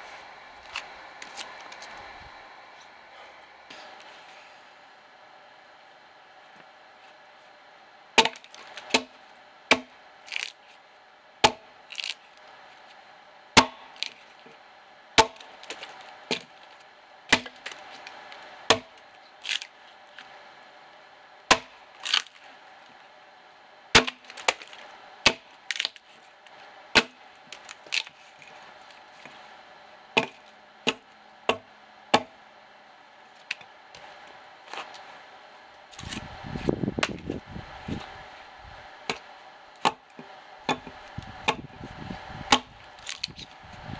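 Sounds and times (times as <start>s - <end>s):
axe chopping log: 8.2s - 10.5s, 11.4s - 11.7s, 13.6s - 14.2s, 15.2s - 16.6s, 17.3s - 17.8s, 18.7s - 19.7s, 21.5s - 22.3s, 23.9s - 26.0s, 26.9s - 27.2s, 30.2s - 32.4s, 39.8s - 40.0s, 40.7s - 41.7s, 42.5s - 43.3s.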